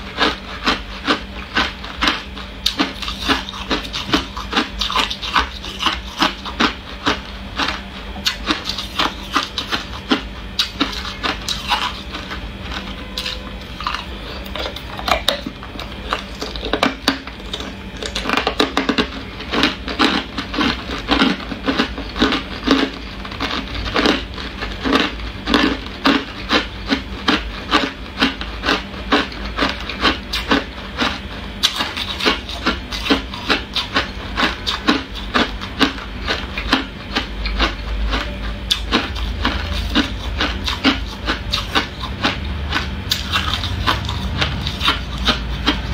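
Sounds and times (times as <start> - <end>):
ice being chewed: 0.0 - 45.9.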